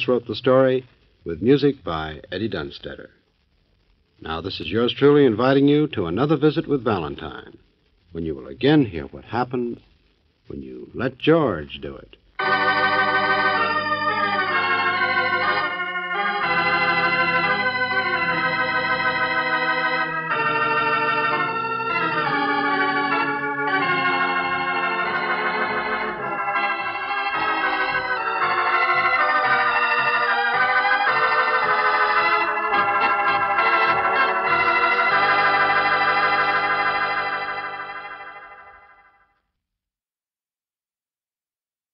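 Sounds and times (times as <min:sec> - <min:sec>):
organ playing chords: 0:12.4 - 0:39.2.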